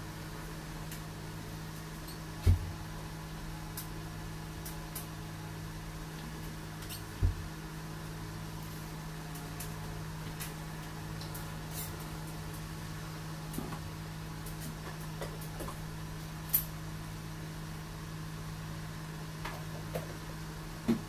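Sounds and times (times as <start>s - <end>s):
low hum of room equipment: 0.0s - 21.0s.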